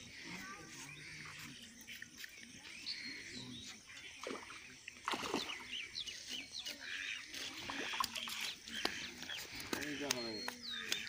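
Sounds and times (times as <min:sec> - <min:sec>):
small birds chirping: 0:00.0 - 0:11.0
fish splashing in water: 0:04.0 - 0:11.0.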